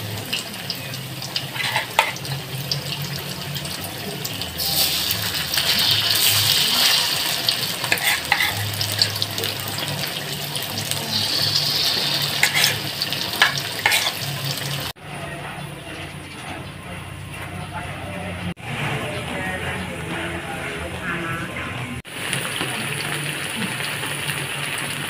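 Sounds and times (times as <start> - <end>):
fish sizzling in hot oil: 0.0 - 15.0, 22.1 - 25.0.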